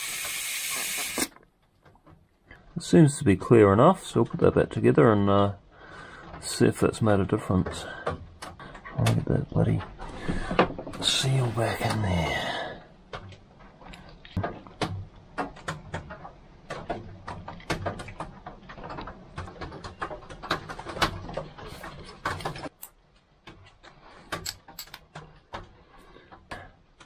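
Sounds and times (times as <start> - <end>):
metallic clicks of tools and parts: 24.3 - 25.3.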